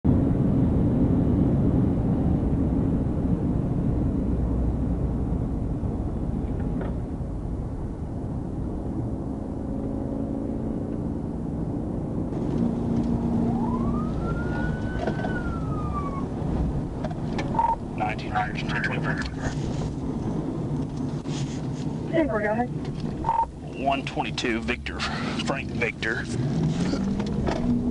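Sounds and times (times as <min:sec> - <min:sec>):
car cabin road rumble: 0:00.1 - 0:27.9
siren wailing: 0:13.1 - 0:16.5, 0:17.5 - 0:17.9, 0:23.2 - 0:23.5.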